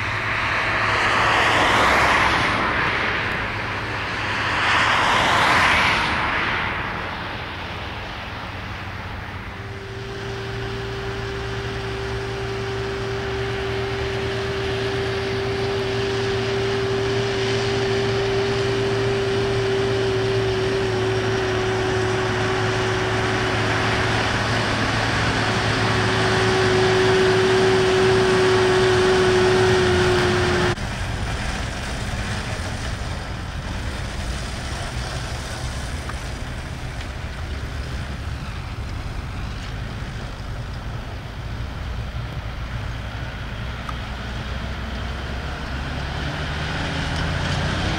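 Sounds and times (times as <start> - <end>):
tractor engine under load: 7.2 - 47.9
steady machine whine: 9.4 - 31.3.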